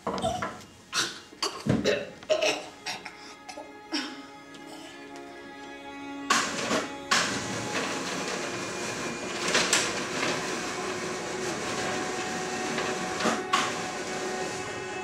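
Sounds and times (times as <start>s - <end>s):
shutter clattering: 6.3s - 14.7s
roller shutter rattling: 6.3s - 15.0s.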